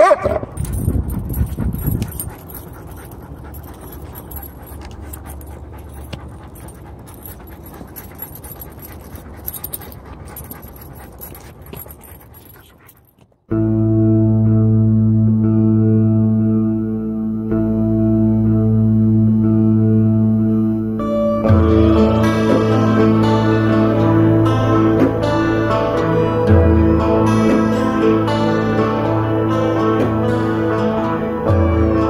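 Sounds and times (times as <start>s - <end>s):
dog barking: 0.0s - 0.6s
leash clicks: 0.0s - 13.5s
outdoor noise: 0.0s - 32.0s
soft ambient music: 1.7s - 11.4s, 13.5s - 32.0s.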